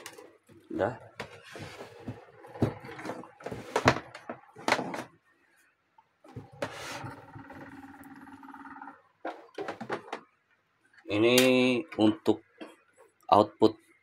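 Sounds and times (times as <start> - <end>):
knocks and thunks of handling: 1.1 - 5.1, 9.3 - 10.3.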